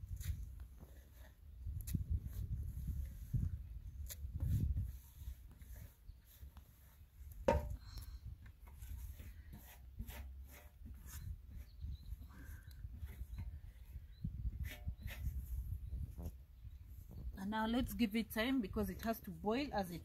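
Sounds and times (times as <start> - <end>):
knock on metal: 7.5 - 7.7.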